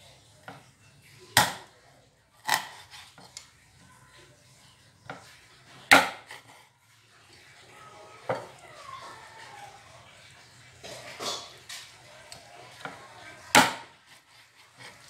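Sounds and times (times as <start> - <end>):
knife chopping on wooden board: 1.4 - 1.6, 5.9 - 6.4, 12.8 - 13.9.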